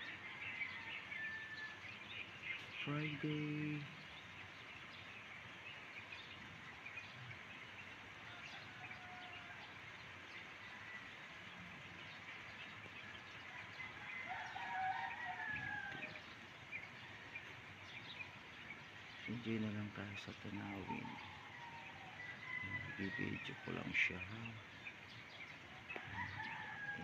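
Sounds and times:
rooster crowing: 0.0 - 2.0, 8.2 - 9.8, 13.4 - 16.3, 20.7 - 24.2, 25.7 - 27.0
small birds chirping: 0.0 - 27.0.

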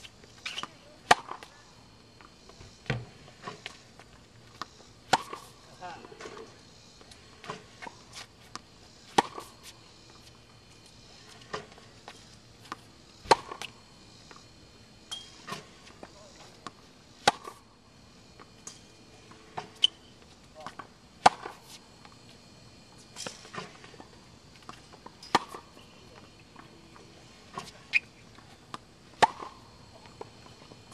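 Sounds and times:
tennis racket hitting balls: 0.5 - 1.5, 4.6 - 5.6, 7.4 - 9.8, 11.5 - 13.7, 17.2 - 17.6, 20.7 - 21.8, 24.6 - 25.7, 28.7 - 30.3.

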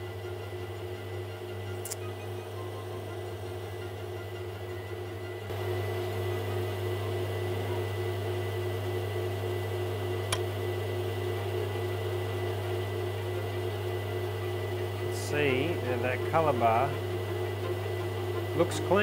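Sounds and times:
grinding machine motor humming: 0.0 - 19.0
short click: 1.8 - 2.0.

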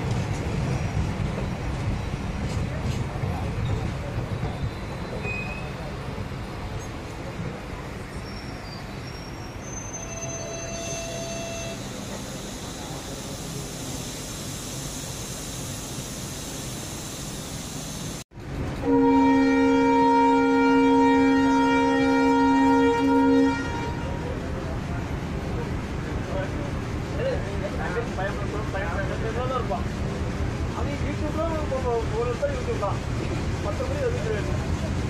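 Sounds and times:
train rumbling along track: 0.0 - 35.0
loud train horn blast: 10.0 - 12.0, 18.8 - 24.3.

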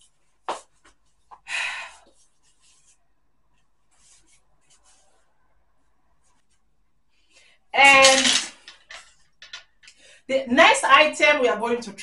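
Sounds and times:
clothing fabric rustling: 2.2 - 5.4.

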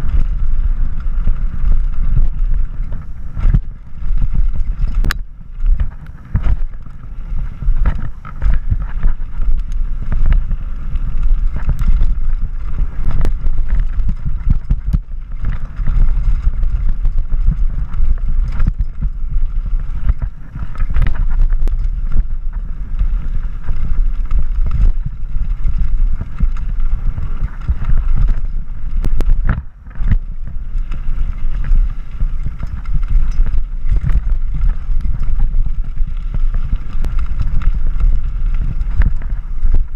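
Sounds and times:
bike tyres rumbling on gravel: 0.0 - 39.9
wind buffeting microphone: 0.0 - 39.9
bike knocking on rocks: 0.9 - 39.9.

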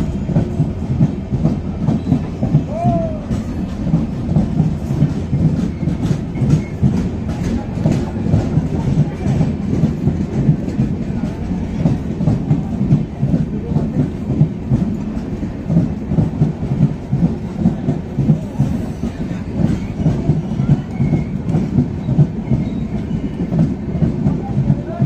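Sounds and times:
train rumbling past: 0.0 - 25.0
wheels clickety-clack on rail joints: 0.0 - 25.0.

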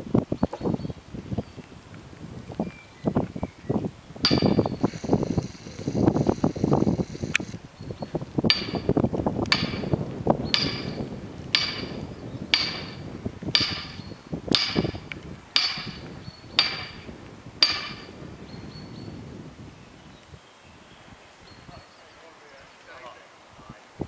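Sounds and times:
hammer striking metal wedge: 4.3 - 4.7, 8.5 - 8.9, 9.5 - 15.0, 15.6 - 18.1.

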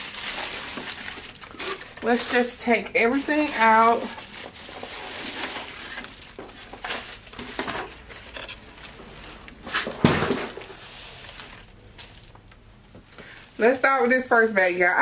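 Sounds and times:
bubble wrap and paper rustling: 0.0 - 14.2.

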